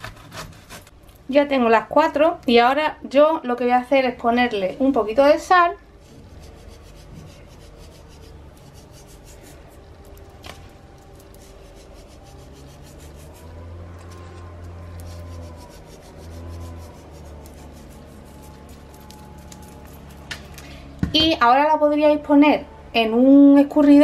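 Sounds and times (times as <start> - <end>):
low steady hum: 0.0 - 24.0
salt grains crackling: 6.4 - 19.8.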